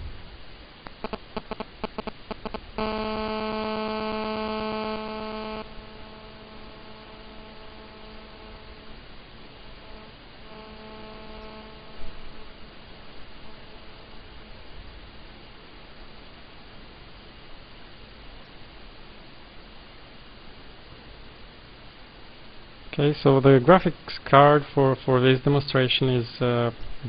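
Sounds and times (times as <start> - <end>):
electrical hum: 0.0 - 27.0
rapid clicks: 0.8 - 9.0, 9.7 - 12.0.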